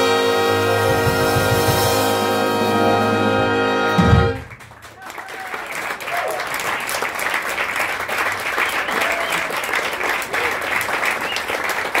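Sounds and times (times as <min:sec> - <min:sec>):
audience clapping: 0:04.3 - 0:12.0.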